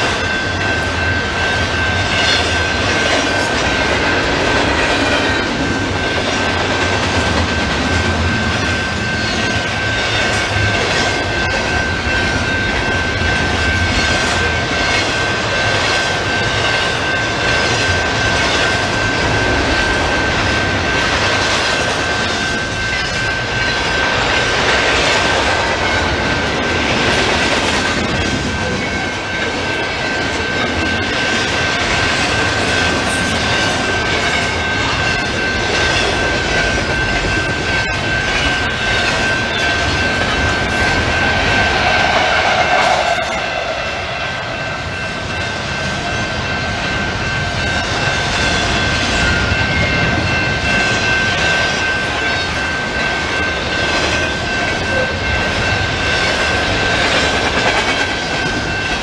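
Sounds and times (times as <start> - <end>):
train wheels rumbling on rail: 0.0 - 59.0
high-pitched tone: 28.1 - 48.6.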